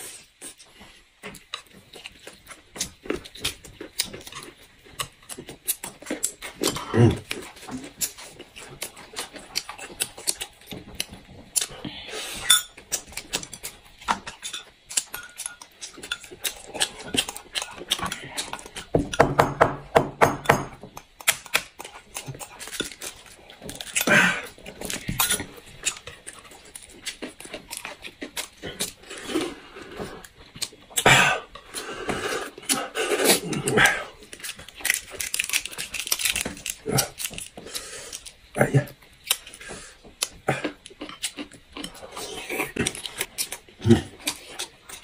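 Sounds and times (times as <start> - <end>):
chewing and lip smacking: 0.1 - 11.9, 21.0 - 31.8, 32.4 - 45.0.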